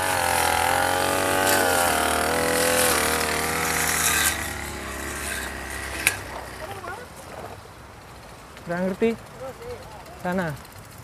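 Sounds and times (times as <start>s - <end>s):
small petrol engine revving: 0.0s - 7.5s.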